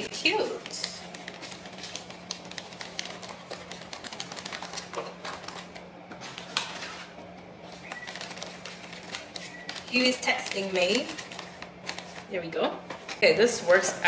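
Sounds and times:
tea bags crinkling and clicking: 0.5s - 5.8s, 7.7s - 13.3s.

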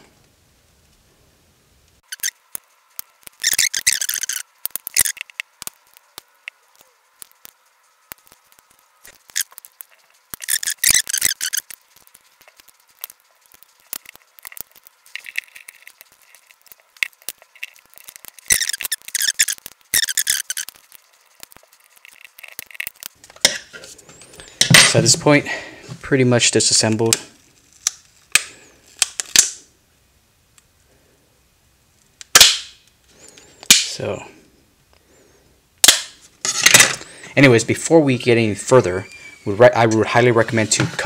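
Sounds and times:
plastic squeaking and creaking: 2.0s - 2.4s, 3.3s - 25.2s, 38.6s - 41.0s
plastic clips popping: 27.1s - 29.6s, 32.2s - 32.8s, 35.8s - 37.0s.

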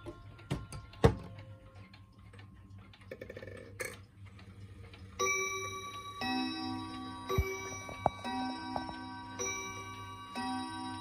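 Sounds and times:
faint clock ticking: 0.0s - 11.0s
clock chime notes: 5.2s - 11.0s.

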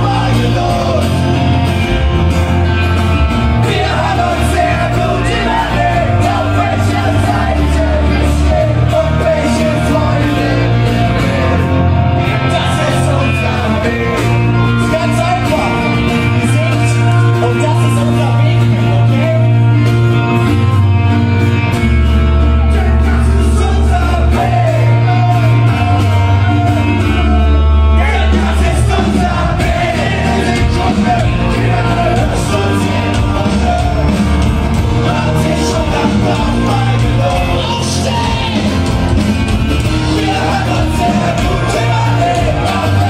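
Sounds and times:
bass line: 0.0s - 43.0s
punk rock band playing live: 0.0s - 43.0s
person singing and shouting: 35.0s - 38.8s.

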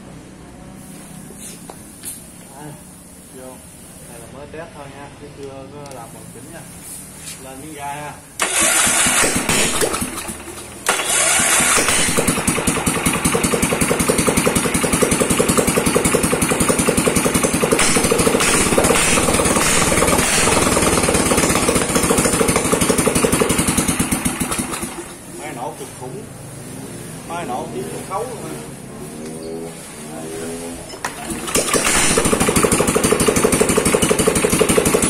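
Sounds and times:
electric starter cranking: 8.4s - 25.2s, 31.0s - 35.0s
small petrol engine running: 8.4s - 25.6s, 31.1s - 35.0s.

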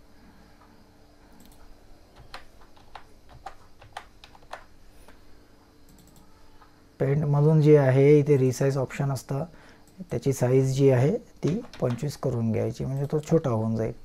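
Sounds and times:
faint hum: 0.0s - 14.0s.

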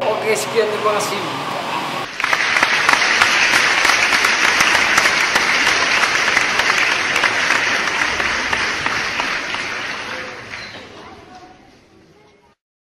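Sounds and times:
crowd applause: 2.0s - 11.3s.

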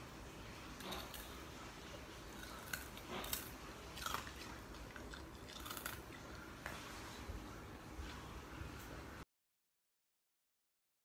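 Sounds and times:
dog chewing crunchy treat: 0.8s - 6.6s.

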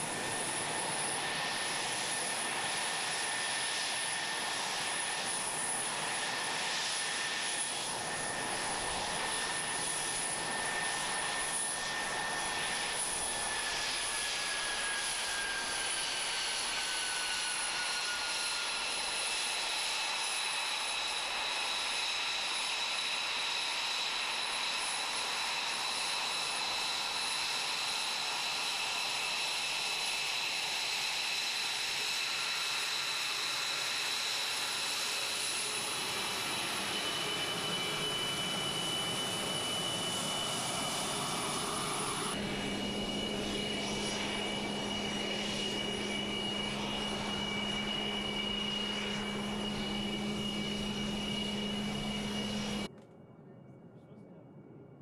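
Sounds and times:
jet engine whine: 0.0s - 55.0s
engine whine with low hum: 35.6s - 54.6s.

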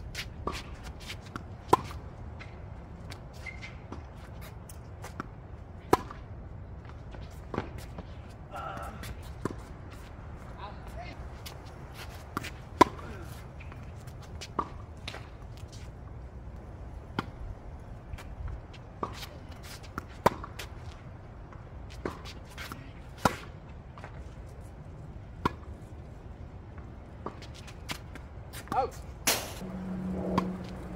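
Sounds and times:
tennis ball bouncing: 5.0s - 8.1s, 11.4s - 15.4s, 18.9s - 20.8s, 21.5s - 24.2s, 25.4s - 25.7s, 29.3s - 30.9s
tennis ball hitting racket strings: 29.2s - 30.9s.

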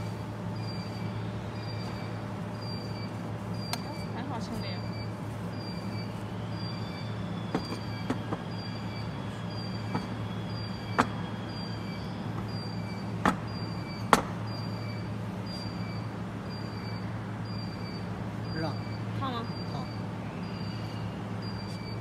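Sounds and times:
low machine hum: 0.0s - 22.0s
faint high chirp: 0.6s - 22.0s.

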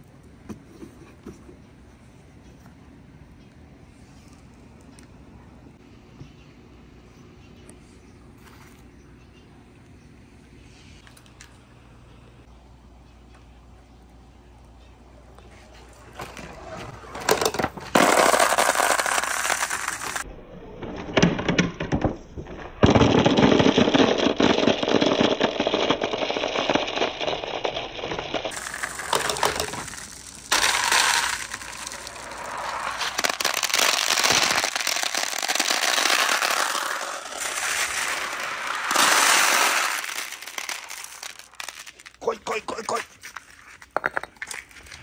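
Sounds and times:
glass marbles clattering: 17.3s - 20.2s, 23.0s - 42.2s.

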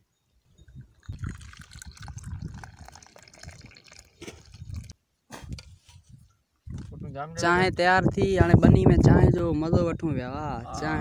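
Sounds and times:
tea pouring into a cup: 0.8s - 5.0s.

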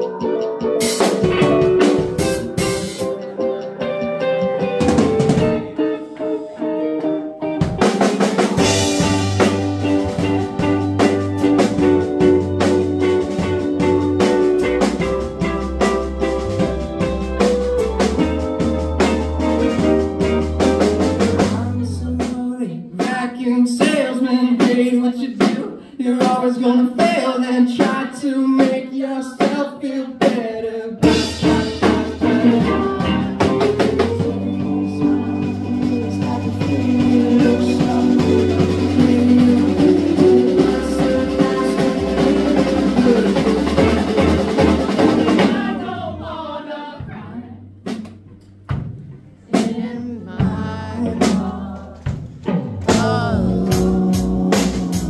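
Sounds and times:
rock band playing live: 0.0s - 23.2s, 31.0s - 46.1s, 47.9s - 55.0s
low bass notes: 8.6s - 22.5s, 31.0s - 46.4s, 47.0s - 55.0s
woman singing: 31.0s - 44.1s, 49.5s - 52.2s, 52.9s - 55.0s.

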